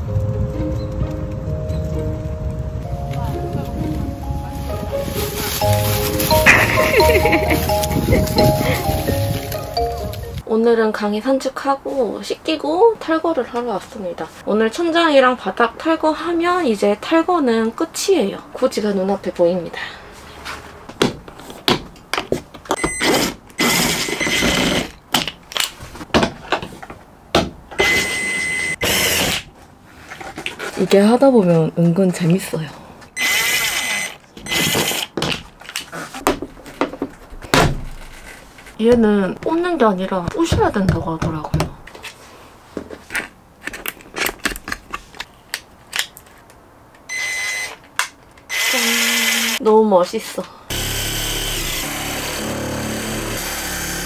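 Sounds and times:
cordless drill running: 0:23.1 - 0:24.9, 0:27.8 - 0:29.4, 0:33.2 - 0:35.0, 0:48.5 - 0:49.6, 0:50.7 - 0:54.0.

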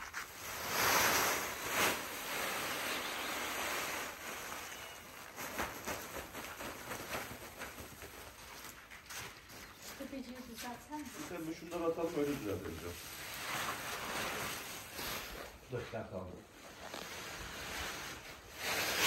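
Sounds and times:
dry grain rustling by hand: 0:00.0 - 0:07.6.

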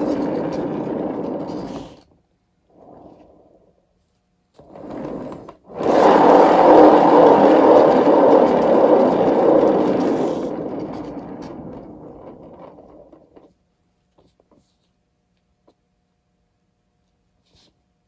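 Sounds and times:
turntable bearings whirring: 0:00.0 - 0:03.8, 0:04.6 - 0:13.6.

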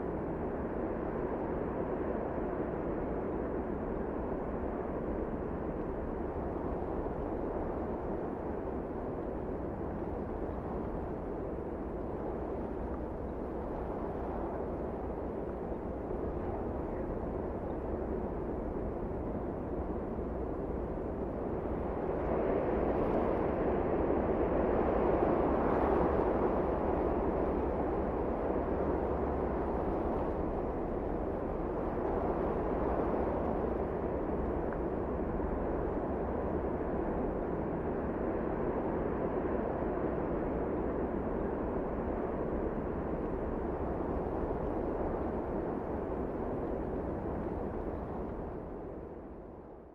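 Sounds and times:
wind rumble on microphone: 0:00.0 - 0:49.9.

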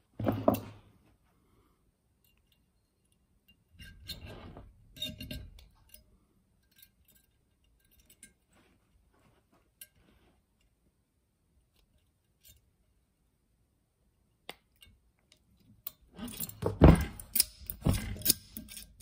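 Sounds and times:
pliers twisting wire: 0:14.5 - 0:19.0.

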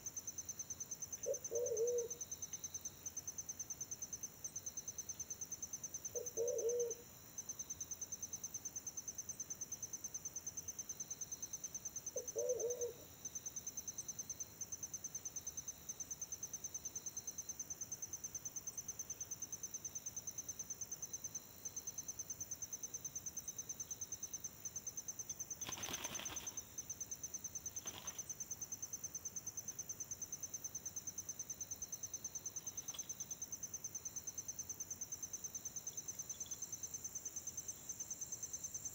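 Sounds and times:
high insect trill: 0:00.0 - 0:38.9
pigeon cooing: 0:01.2 - 0:02.2, 0:06.2 - 0:07.0, 0:12.2 - 0:13.0.

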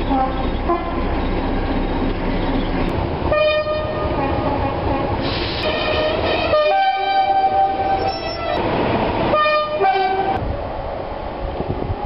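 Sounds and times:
two-tone locomotive horn: 0:00.0 - 0:01.1, 0:03.3 - 0:08.6, 0:09.3 - 0:10.4
train running noise: 0:00.0 - 0:12.0.

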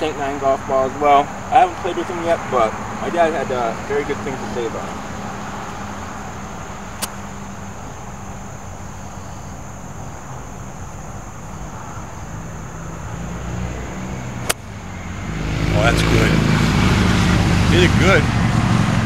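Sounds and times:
golf club striking ball: 0:07.0 - 0:07.2, 0:14.4 - 0:14.8.

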